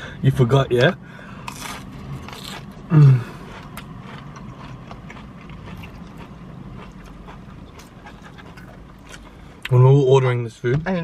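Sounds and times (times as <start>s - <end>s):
low background hum: 0.0s - 11.0s
quiet chewing: 1.5s - 9.7s.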